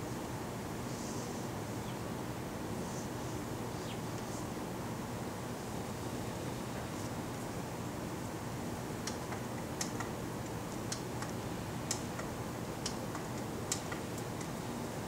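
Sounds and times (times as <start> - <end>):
low background hum: 0.0 - 15.0
light ticking clicks: 9.0 - 14.6.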